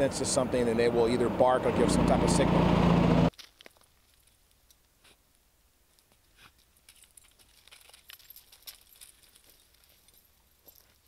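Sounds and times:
faint clinks and rustles: 0:03.3 - 0:04.9, 0:05.9 - 0:11.0.

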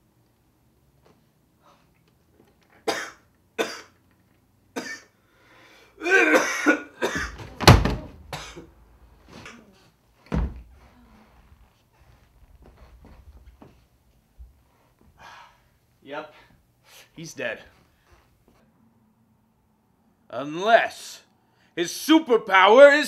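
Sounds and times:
man coughing: 0:02.8 - 0:04.0, 0:04.8 - 0:05.2, 0:06.0 - 0:07.4, 0:08.3 - 0:08.7
man groaning: 0:06.0 - 0:06.5
heavy thump on floor: 0:07.2 - 0:08.4, 0:10.3 - 0:10.7.

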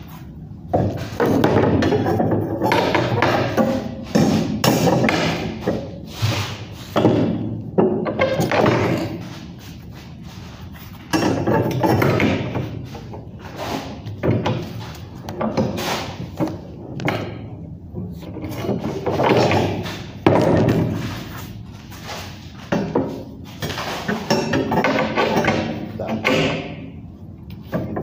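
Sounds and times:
steel bar clanking and knocking: 0:00.8 - 0:06.0, 0:06.9 - 0:09.3, 0:11.1 - 0:17.6, 0:22.7 - 0:27.0.

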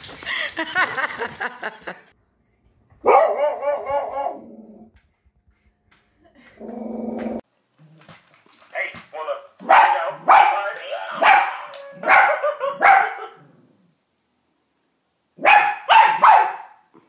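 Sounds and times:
dog barking: 0:03.0 - 0:04.5, 0:09.6 - 0:13.4, 0:15.4 - 0:16.9.

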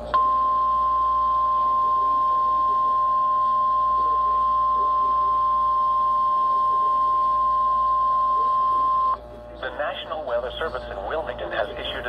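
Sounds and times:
steady high alarm tone: 0:00.0 - 0:09.2.

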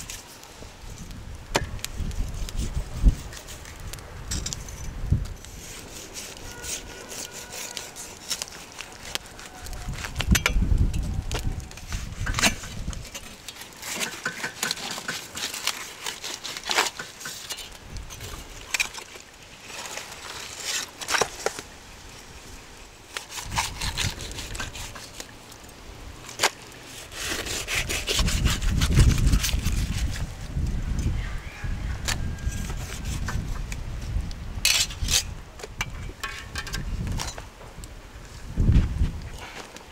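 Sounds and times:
knife slicing and scraping meat: 0:05.4 - 0:10.2, 0:23.2 - 0:25.3, 0:26.9 - 0:30.2, 0:32.4 - 0:33.4.

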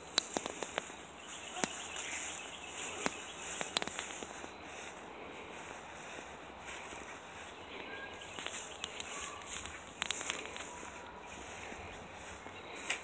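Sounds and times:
sharp clicks: 0:00.0 - 0:04.3, 0:08.2 - 0:11.1
high-pitched insect chorus: 0:00.2 - 0:04.5.

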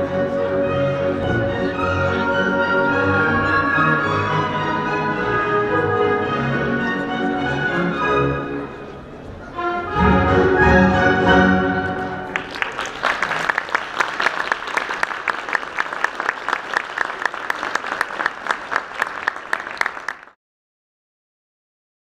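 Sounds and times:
orchestral chord: 0:00.0 - 0:12.4
audience applauding: 0:12.3 - 0:20.4.

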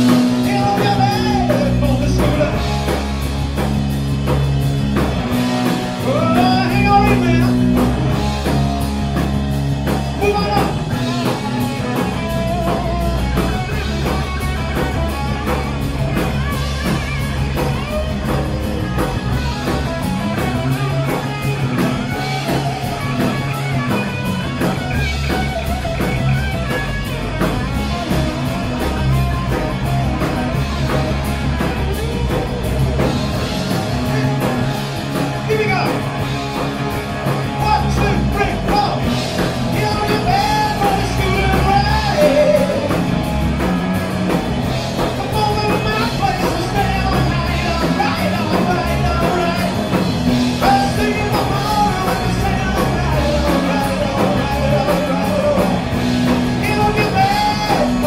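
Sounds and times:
man singing: 0:00.0 - 0:03.0, 0:06.0 - 0:08.0, 0:09.9 - 0:14.2, 0:33.7 - 0:36.2, 0:37.4 - 0:43.3, 0:45.0 - 0:58.0
bass guitar: 0:00.0 - 0:58.0
drum kit: 0:00.0 - 0:58.0
electric guitars: 0:00.0 - 0:58.0.

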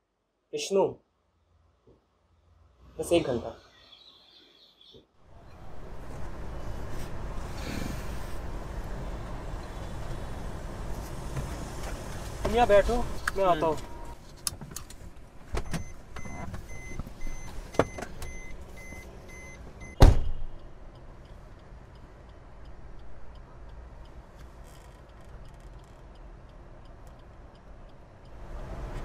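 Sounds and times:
car door shutting: 0:15.5 - 0:18.4, 0:19.8 - 0:20.4
faint repeating beep: 0:15.8 - 0:20.5.

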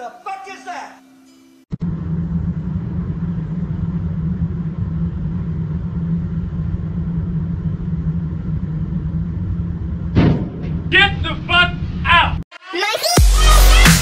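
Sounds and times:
car engine at motorway speed: 0:01.8 - 0:12.1
tyre road noise: 0:01.8 - 0:12.4.

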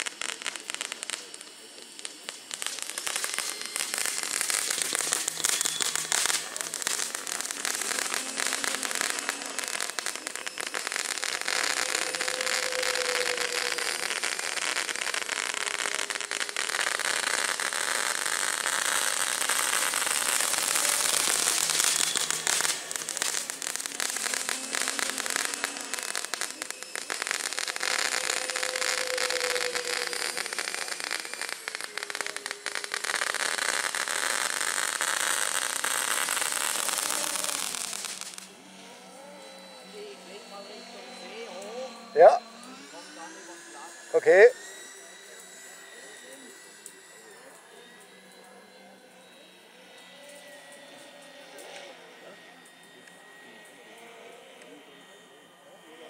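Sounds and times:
fireworks crackling: 0:00.0 - 0:48.8.

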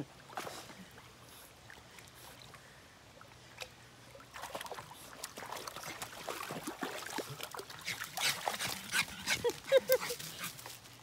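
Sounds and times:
dog splashing through water: 0:04.3 - 0:10.6.

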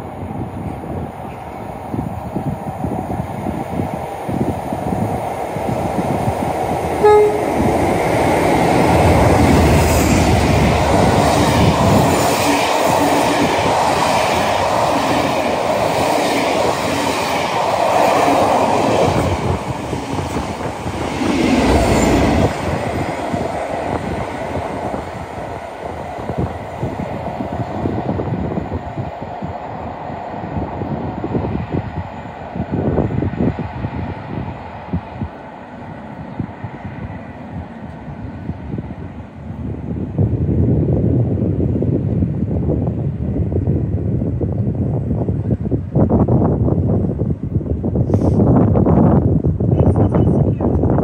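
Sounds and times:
train wheels rumbling on rails: 0:00.0 - 0:51.0
train horn toot: 0:07.0 - 0:07.8.

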